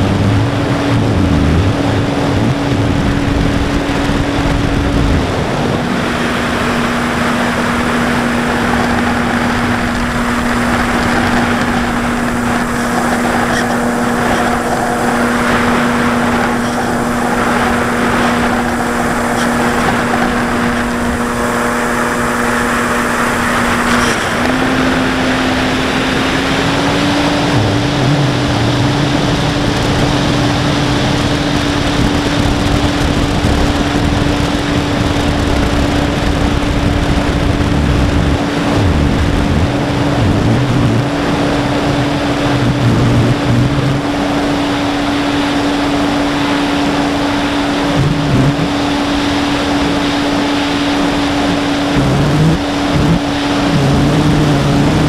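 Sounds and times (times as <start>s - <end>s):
electric motor and propeller: 0.0s - 55.0s
rush of airflow: 0.0s - 55.0s.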